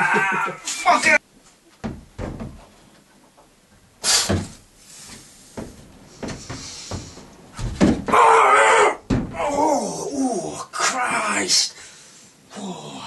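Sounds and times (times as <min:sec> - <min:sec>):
person yelling with effort: 0:00.0 - 0:01.2, 0:08.1 - 0:11.5
shoes and hands knocking on wall: 0:01.8 - 0:02.7, 0:05.6 - 0:08.2, 0:09.1 - 0:09.4.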